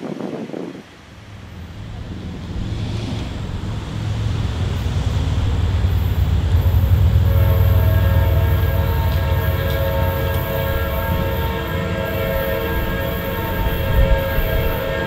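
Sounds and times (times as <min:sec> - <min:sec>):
diesel locomotive rumble: 0:00.8 - 0:15.0
train horn: 0:06.4 - 0:15.0.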